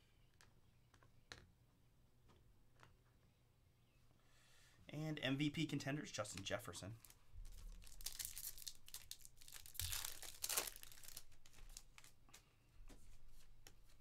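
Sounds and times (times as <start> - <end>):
wrapper crinkling: 7.0 - 12.2
foil card pack tearing: 7.7 - 12.1.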